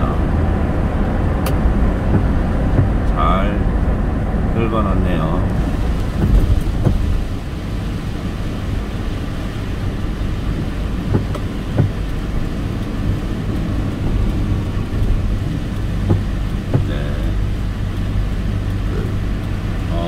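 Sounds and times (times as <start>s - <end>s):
tyres and engine rumble: 0.0s - 20.0s
short knocks: 6.2s - 7.2s, 11.1s - 12.0s, 16.0s - 17.0s.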